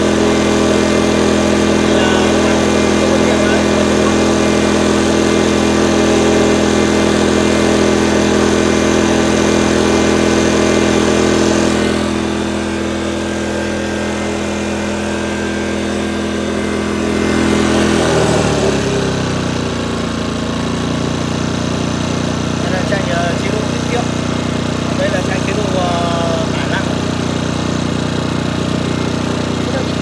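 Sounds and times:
generator running: 0.0s - 30.0s.

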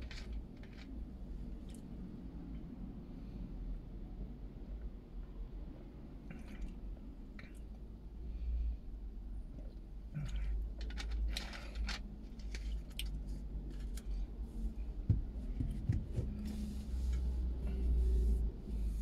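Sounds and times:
clicks and rustles: 0.0s - 1.0s, 10.2s - 14.2s
dull knocks: 15.0s - 16.4s.

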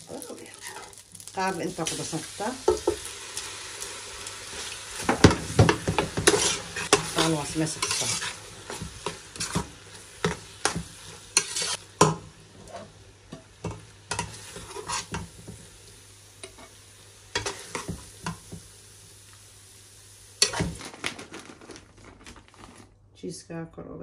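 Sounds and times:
metal spoon scraping pot: 6.2s - 8.4s, 11.4s - 11.8s.

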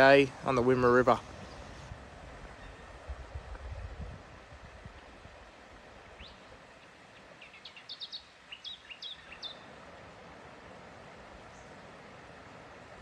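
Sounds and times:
steady outdoor hiss: 0.0s - 13.0s
small bird chirping: 7.4s - 9.7s.

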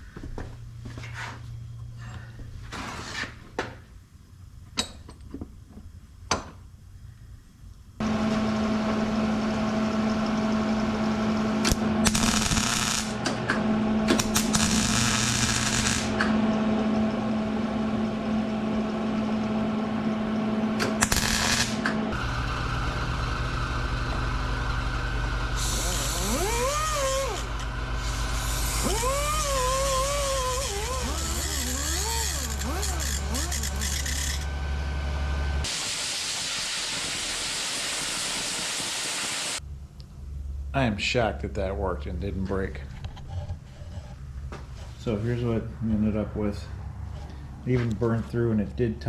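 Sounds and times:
steady machine noise: 8.0s - 39.6s
welding arc buzzing crackle: 11.5s - 13.4s, 14.0s - 16.3s, 20.8s - 22.2s, 25.5s - 34.5s.

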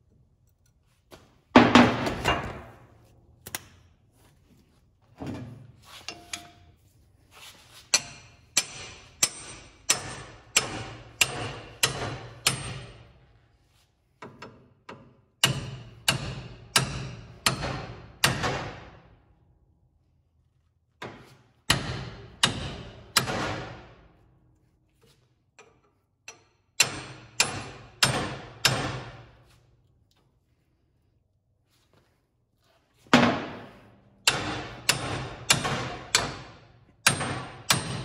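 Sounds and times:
hammer blows ringing on metal: 8.0s - 13.1s, 15.4s - 19.0s, 34.2s - 38.0s.

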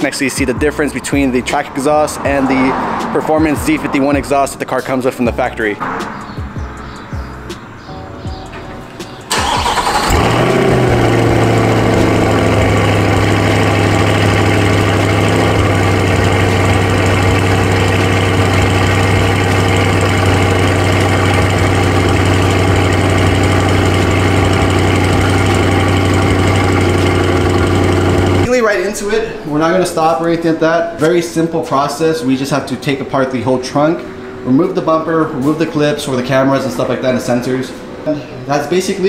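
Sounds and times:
car engine starting and idling: 6.7s - 31.4s.

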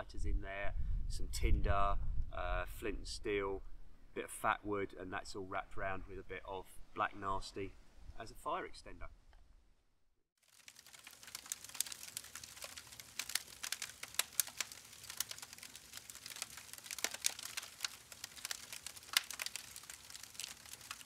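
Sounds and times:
log fire crackling and popping: 10.4s - 21.0s.

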